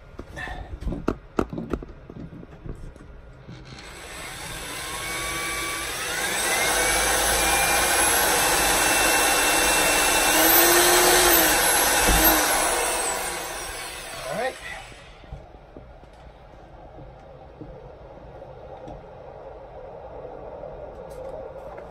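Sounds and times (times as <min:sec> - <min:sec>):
electric drill whining: 0:03.5 - 0:15.3.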